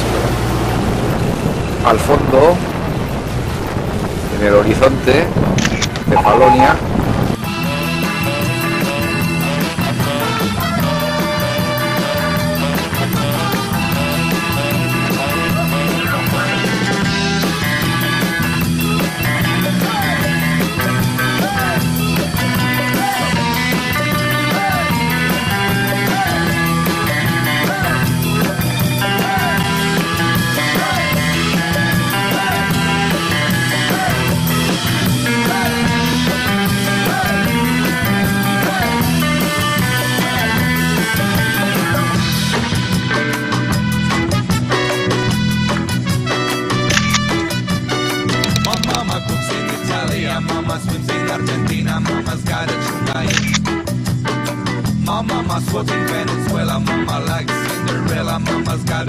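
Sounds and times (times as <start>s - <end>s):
upbeat rock music: 4.4s - 59.0s.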